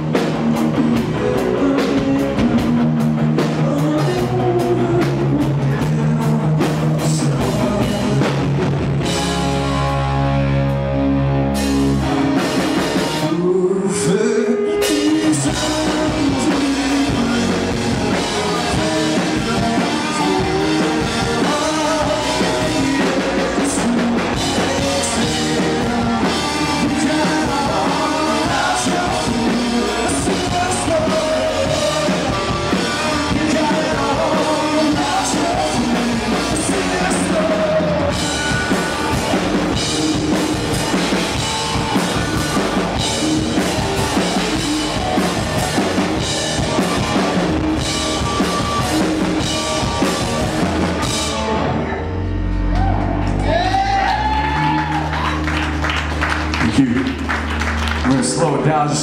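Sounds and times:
drum kit: 0:00.0 - 0:59.0
electric bass: 0:00.0 - 0:59.0
electric guitars: 0:00.0 - 0:59.0
lead vocal singing: 0:01.0 - 0:09.2, 0:13.2 - 0:50.4.

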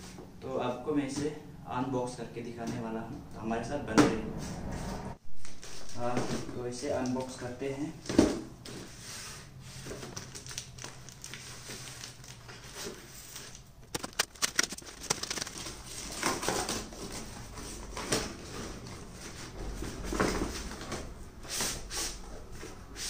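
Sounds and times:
cardboard rustling and tearing: 0:09.8 - 0:21.0
sharp clicks: 0:13.8 - 0:15.6.

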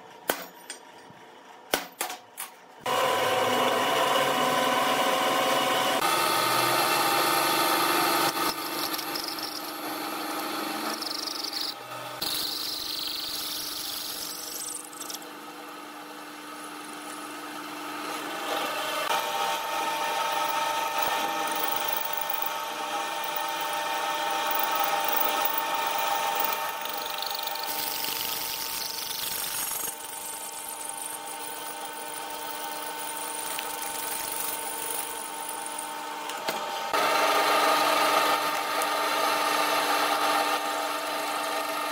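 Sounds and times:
drill press motor running: 0:02.8 - 0:41.9
drill bit boring into steel: 0:03.0 - 0:15.2, 0:19.3 - 0:36.0.

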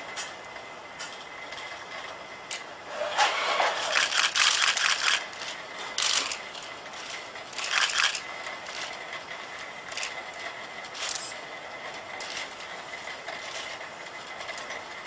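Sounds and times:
robot motors whirring and rattling: 0:02.9 - 0:09.0, 0:09.9 - 0:10.2, 0:10.9 - 0:11.4.

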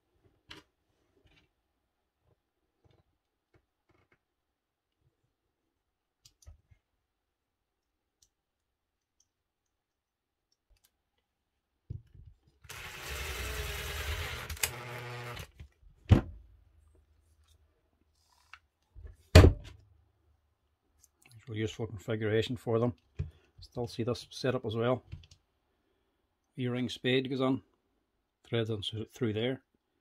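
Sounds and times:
impact driver motor whine: 0:12.7 - 0:15.5.

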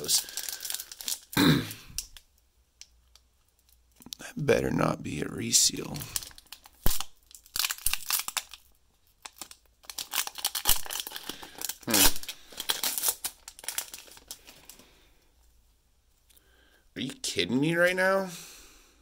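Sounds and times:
foil wrapper crinkling and tearing: 0:00.0 - 0:02.2, 0:05.8 - 0:14.8
foil wrapper snapping: 0:06.2 - 0:14.4.

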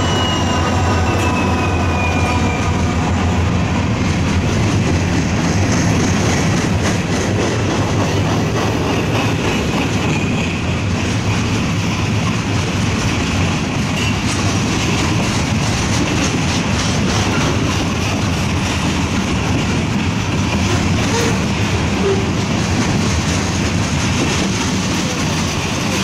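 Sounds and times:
train wheels rolling on rail: 0:00.0 - 0:26.0
wheels clicking over rail joints: 0:04.0 - 0:26.0.

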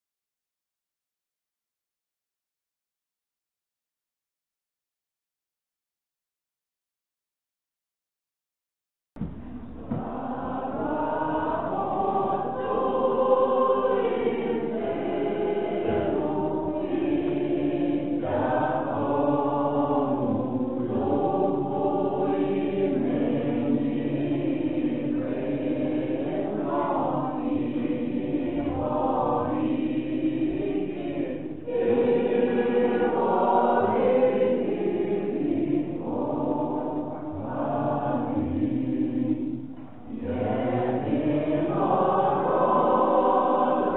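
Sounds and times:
choir singing chant: 0:09.2 - 0:43.9.

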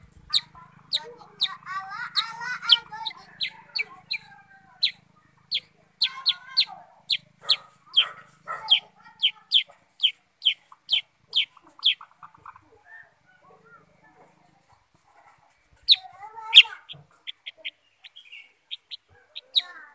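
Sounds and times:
bird chattering: 0:00.0 - 0:19.9
bird calling in sharp notes: 0:00.3 - 0:12.1, 0:15.8 - 0:19.9.

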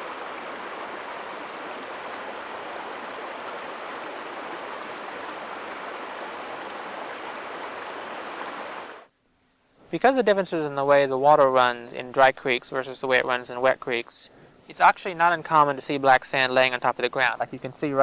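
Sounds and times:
river rushing over rocks: 0:00.0 - 0:09.1.

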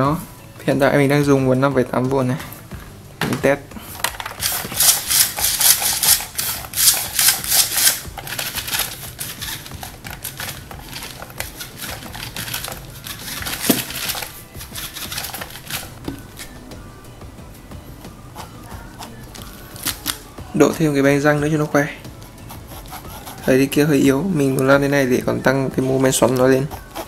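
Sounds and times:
toy car motor whirring: 0:04.3 - 0:16.0, 0:22.3 - 0:23.6.

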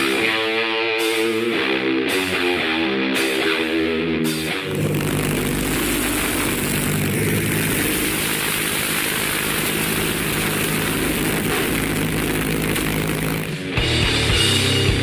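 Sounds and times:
motorcycle engine running: 0:04.7 - 0:15.0.

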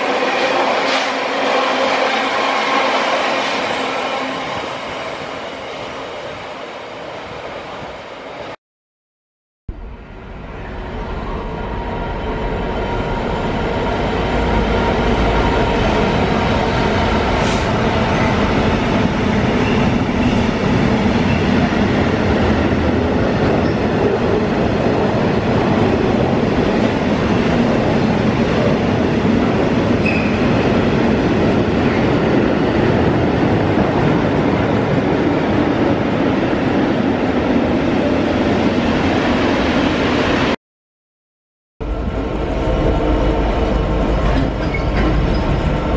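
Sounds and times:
diesel locomotive passing: 0:09.8 - 0:40.5, 0:41.8 - 0:45.9
train wheels rumbling on rail: 0:10.4 - 0:40.4, 0:41.9 - 0:45.9.

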